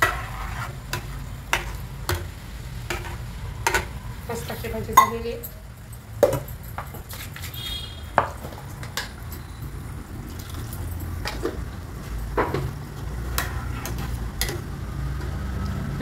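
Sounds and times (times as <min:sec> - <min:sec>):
ladle stirring a pot: 0:00.0 - 0:05.2, 0:10.2 - 0:15.4.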